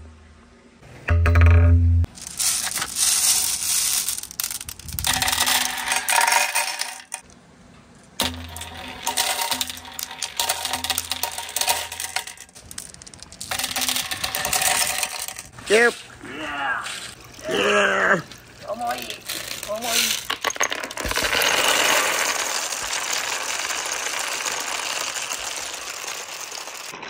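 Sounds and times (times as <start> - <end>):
marbles rolling down wooden run: 1.4 - 7.2, 8.2 - 15.6, 18.8 - 27.0.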